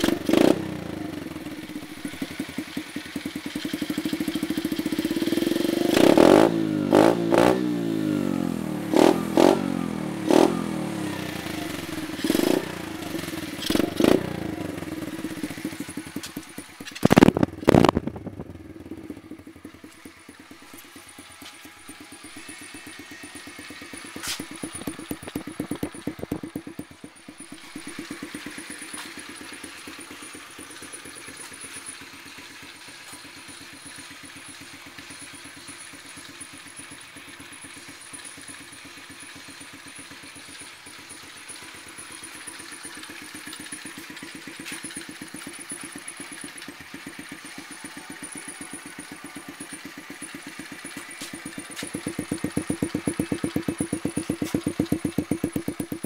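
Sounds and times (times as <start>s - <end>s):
small motorbike engine idling: 0.0s - 56.0s.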